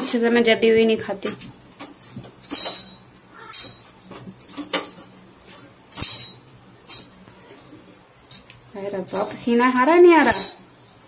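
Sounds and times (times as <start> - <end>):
metal tongs clinking: 1.2 - 7.2, 8.2 - 10.7.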